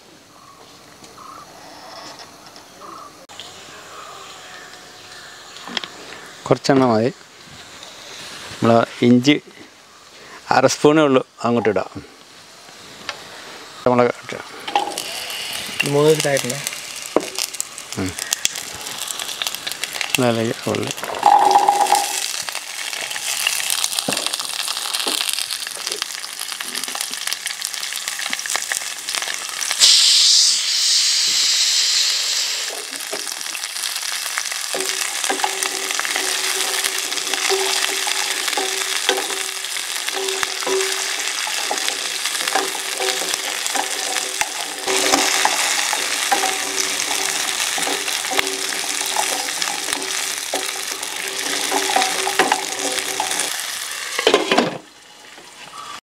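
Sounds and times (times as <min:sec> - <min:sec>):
shallots sizzling in oil: 0:11.7 - 0:56.0
wooden spatula stirring in pot: 0:34.7 - 0:53.6.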